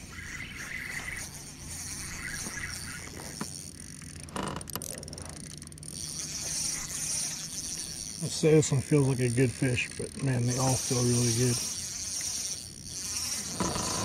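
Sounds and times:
fishing reel drag clicking: 0.0s - 14.0s.

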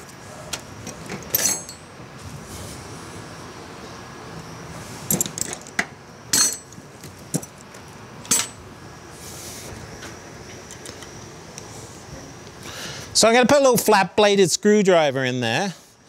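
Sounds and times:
metal tools clinking: 1.0s - 1.9s, 5.1s - 7.6s, 8.3s - 8.6s.

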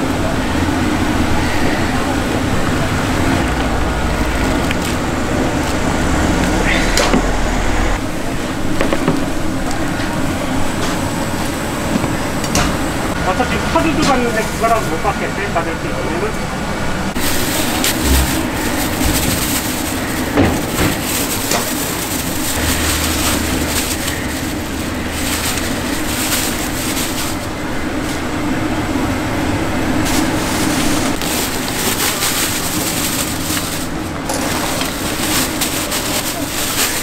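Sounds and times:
gas burners roaring: 0.0s - 37.0s
ladles and containers clattering: 17.1s - 28.2s, 30.1s - 37.0s
soup boiling in pots: 17.1s - 37.0s.

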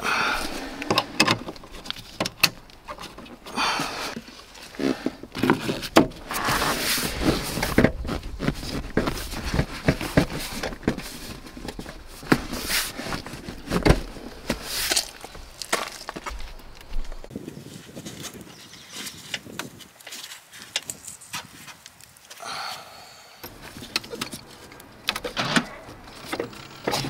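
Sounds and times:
leather and plastic rustling: 4.1s - 22.4s.

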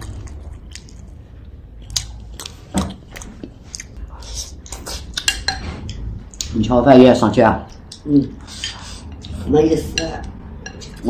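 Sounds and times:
person chewing: 0.0s - 6.5s.

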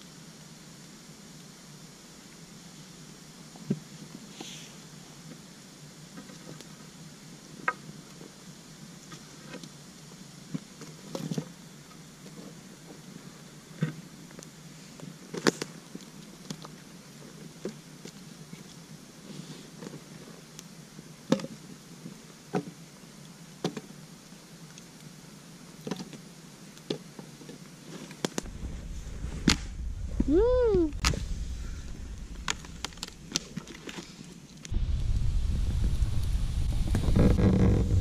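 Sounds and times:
campfire burning with pops: 7.5s - 19.0s, 19.7s - 38.0s
voice-like tone: 30.2s - 31.2s.

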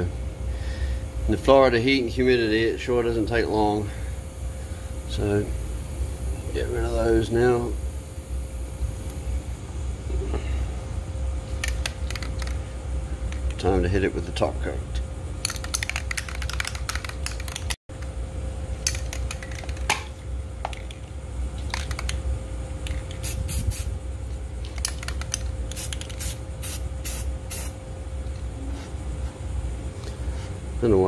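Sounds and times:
steady low hum: 0.0s - 31.0s
aerosol can ball rattling: 11.6s - 12.6s, 15.4s - 17.8s, 18.8s - 22.2s, 24.6s - 27.7s
spray paint hissing: 22.9s - 24.0s, 24.7s - 27.8s.

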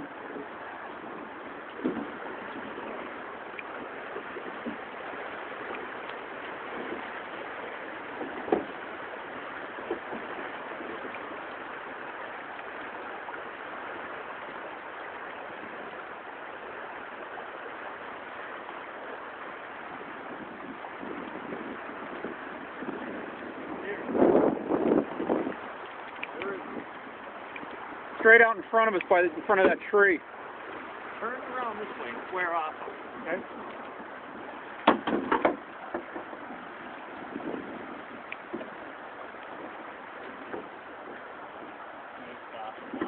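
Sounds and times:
river water rushing: 0.0s - 43.0s
light knocks: 34.8s - 36.4s.

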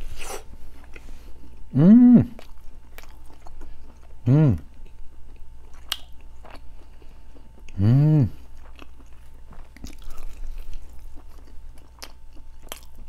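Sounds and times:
man chewing pizza: 0.0s - 13.0s
man humming mmm: 1.7s - 2.5s, 4.2s - 4.8s, 7.7s - 8.5s.

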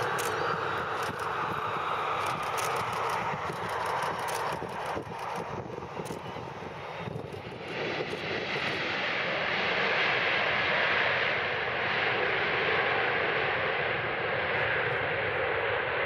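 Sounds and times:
jet engines rushing: 0.0s - 16.0s.

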